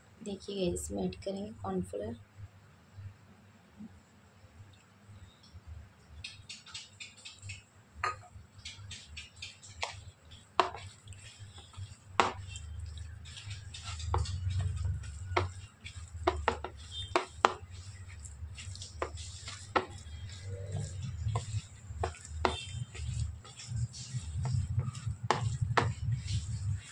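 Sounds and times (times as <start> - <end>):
hand kneading raw chicken: 8.5 - 26.9.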